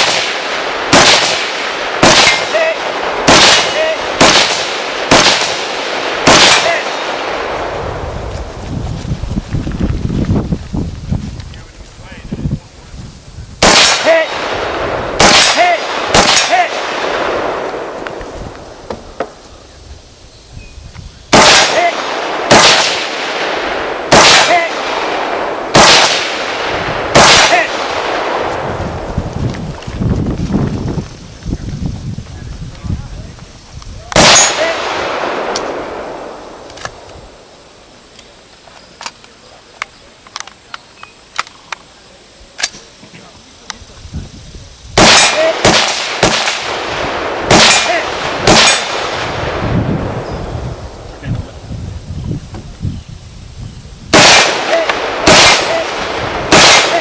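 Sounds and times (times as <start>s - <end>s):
rifle shots echoing: 0.0s - 8.0s, 13.6s - 18.4s, 21.3s - 29.1s, 34.1s - 37.5s, 45.0s - 50.2s, 54.1s - 57.0s.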